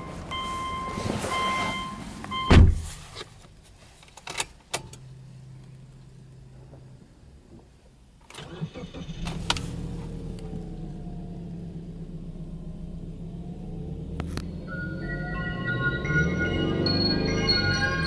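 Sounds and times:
car engine starting and idling: 4.4 - 18.0.

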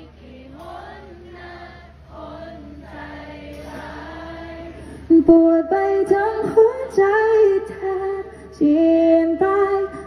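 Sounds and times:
choir of several voices: 0.0 - 6.4.

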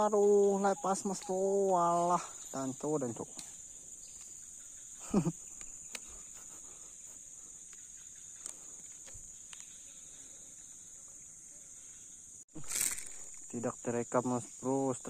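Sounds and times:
insects chirring: 0.0 - 15.0
faint clicks: 5.5 - 6.6, 7.6 - 9.8.

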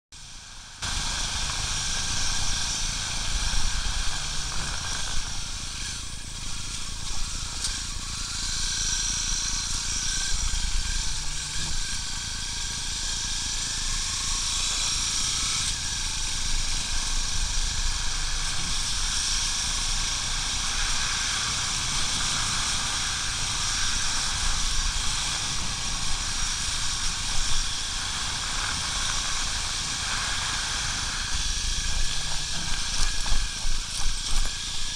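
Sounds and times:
motorcycle engine rumble: 0.2 - 7.8.

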